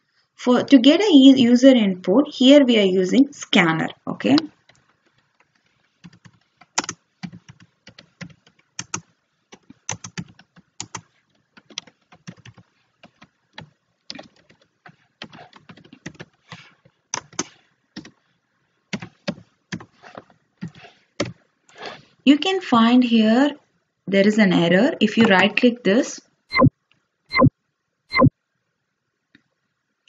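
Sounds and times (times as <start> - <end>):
computer keyboard typing: 4.3 - 18.2, 18.9 - 20.0.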